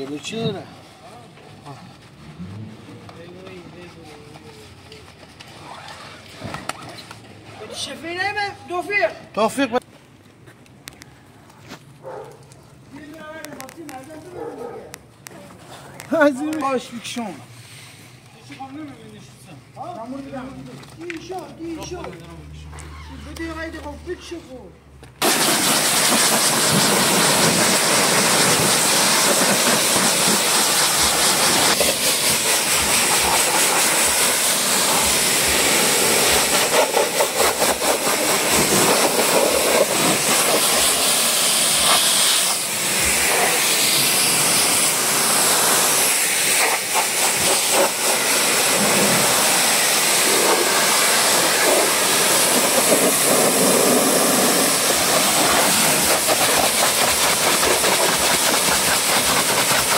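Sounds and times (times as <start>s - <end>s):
pressure washer spraying: 25.2s - 59.9s.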